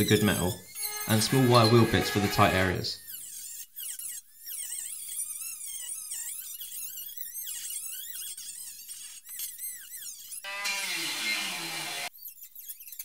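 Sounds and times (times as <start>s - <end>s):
rotary tool wire wheel on steel: 0.2s - 10.4s
lower-pitched tool sound: 0.7s - 3.1s, 10.5s - 12.1s.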